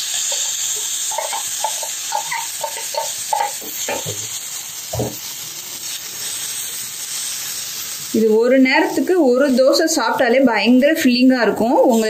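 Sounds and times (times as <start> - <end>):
spoon scraping a pan: 0.0 - 4.4
batter sizzling on a griddle: 0.0 - 12.0
spoon knocking: 1.1 - 4.2.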